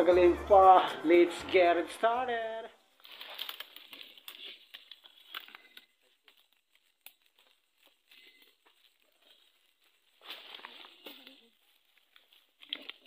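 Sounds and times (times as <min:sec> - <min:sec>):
leaves and twigs rustling: 0:02.9 - 0:13.0.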